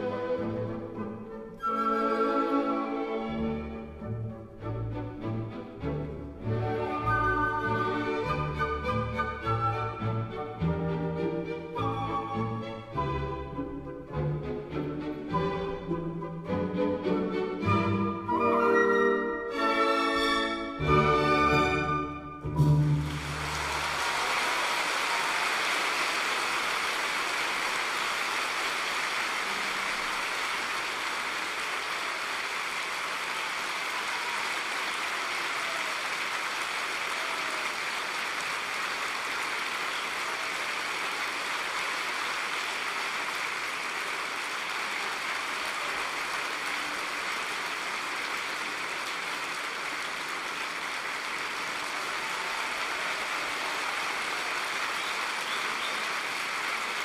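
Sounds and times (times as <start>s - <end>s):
audience applauding: 6.6s - 10.7s, 22.6s - 57.0s.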